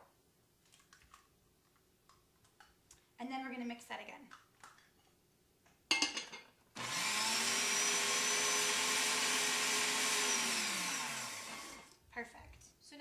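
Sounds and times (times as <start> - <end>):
countertop blender running: 6.8 - 12.0.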